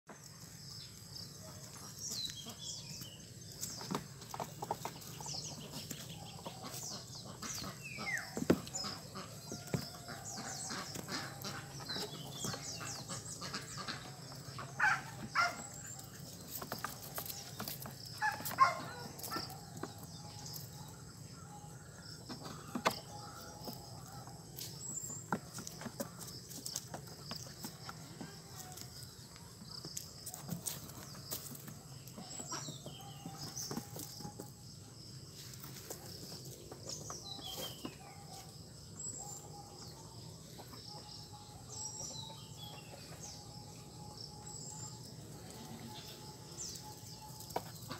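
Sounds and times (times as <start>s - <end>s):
birds chirping: 0.1s - 47.9s
fowl clucking: 6.5s - 11.8s, 12.8s - 15.6s.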